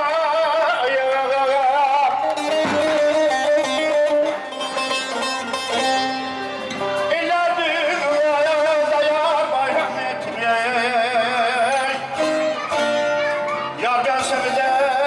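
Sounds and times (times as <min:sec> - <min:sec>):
man singing through loudspeaker: 0:00.0 - 0:04.6, 0:06.8 - 0:12.8, 0:13.6 - 0:15.0
long-necked lute playing: 0:02.2 - 0:10.0, 0:11.2 - 0:15.0.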